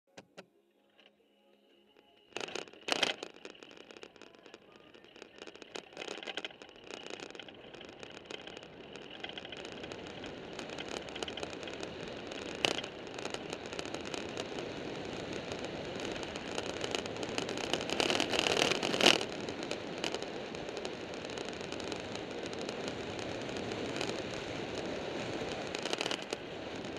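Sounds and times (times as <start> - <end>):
chassis rattling: 2.1 - 20.2
tyres rolling on asphalt: 2.3 - 26.9.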